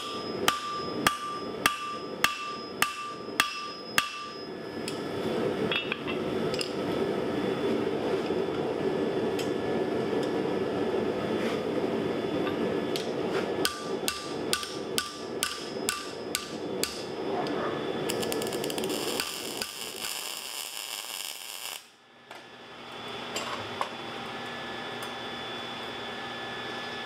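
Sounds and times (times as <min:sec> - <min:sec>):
hammer striking steel on anvil: 0:00.0 - 0:05.0, 0:13.0 - 0:17.2
high crackling hiss: 0:18.0 - 0:22.0.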